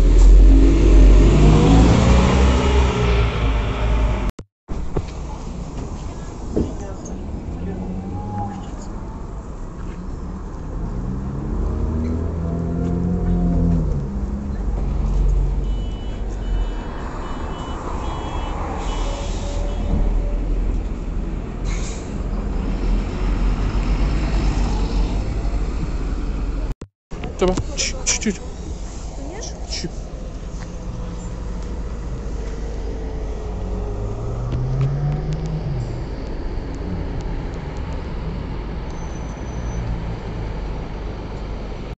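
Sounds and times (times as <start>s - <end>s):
bus engine rumbling: 0.0s - 42.0s
road and traffic noise: 0.0s - 42.0s
high two-tone beeps: 15.6s - 18.5s.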